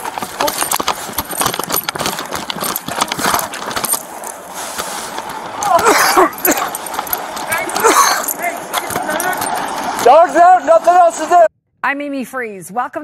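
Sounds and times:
camera rubbing against fur: 0.0 - 10.1
metallic jingling: 0.0 - 10.4.

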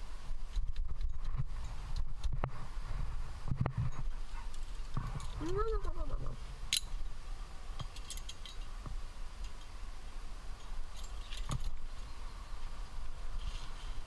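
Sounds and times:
metal climbing gear clinking: 3.8 - 6.0, 6.7 - 7.1, 7.8 - 8.8, 10.5 - 12.1.

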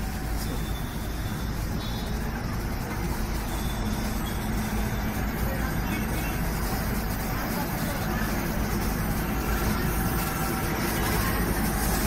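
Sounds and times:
locomotive low rumble: 0.0 - 12.0.

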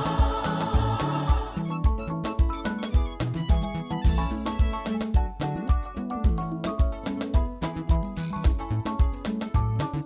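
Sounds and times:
drum beat: 0.0 - 9.8
keyboard melody: 0.0 - 10.0.

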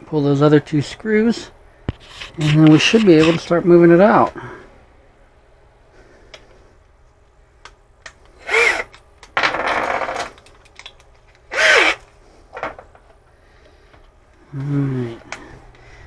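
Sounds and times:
power drill spinning: 8.4 - 10.4, 11.5 - 12.1.

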